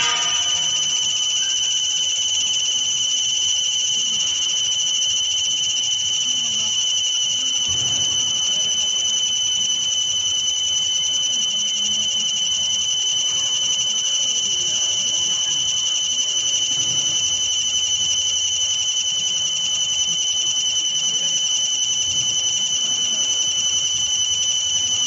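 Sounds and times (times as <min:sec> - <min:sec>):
laser marking machine whine: 0:00.0 - 0:25.0.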